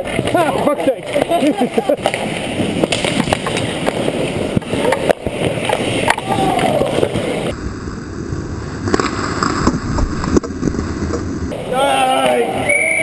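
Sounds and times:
hockey sticks and puck clacking: 0:00.0 - 0:07.5
skates scraping on ice: 0:00.0 - 0:12.6.

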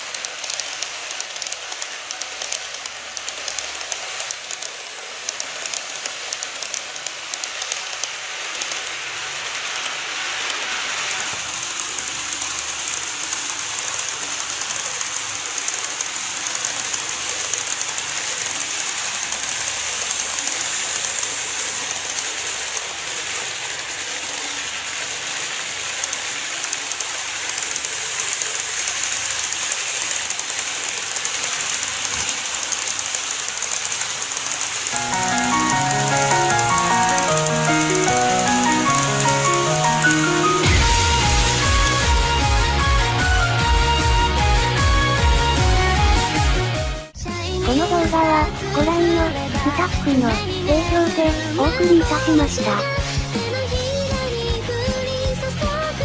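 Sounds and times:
model train wheels rolling hiss: 0:00.0 - 0:39.0
light rail clicks: 0:00.0 - 0:40.2.

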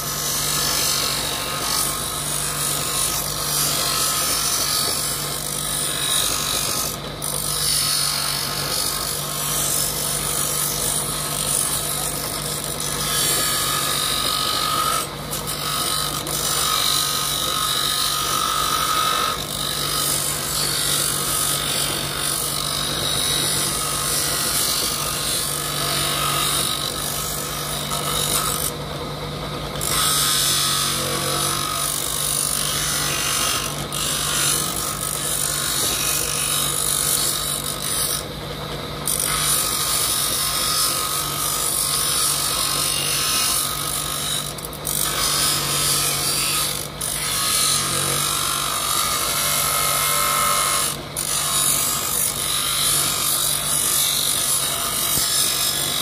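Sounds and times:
bench grinder motor hum: 0:00.0 - 0:56.0
horn rasping against grinding wheel: 0:00.0 - 0:56.0.

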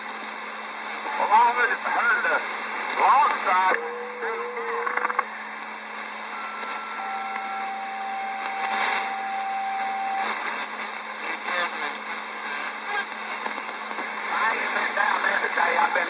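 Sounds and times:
faint wavering distant signals: 0:00.0 - 0:16.0
radio static hiss: 0:00.0 - 0:16.0
steady radio whistles: 0:06.0 - 0:14.0.

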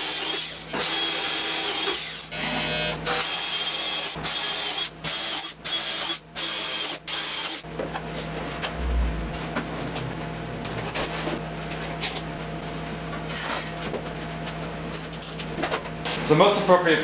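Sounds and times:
power drill boring into wood: 0:00.0 - 0:07.6.

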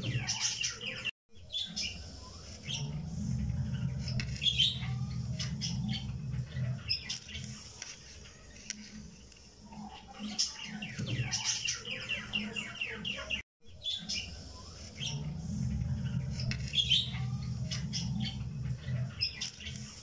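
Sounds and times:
bird chirping: 0:00.0 - 0:20.0
low steady hum: 0:02.0 - 0:06.9.

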